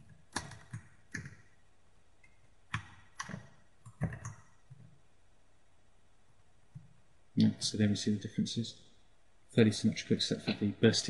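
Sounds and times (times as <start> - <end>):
keyboard and mouse clicks: 0.0 - 1.5, 2.2 - 5.0.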